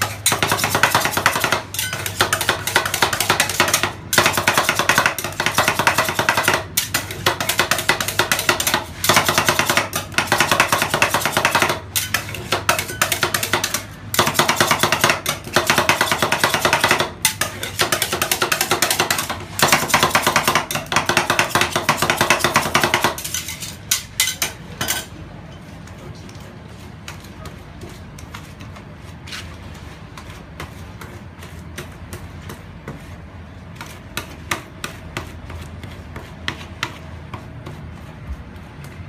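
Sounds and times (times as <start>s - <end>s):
metal spatulas clattering on pan: 0.0s - 25.1s.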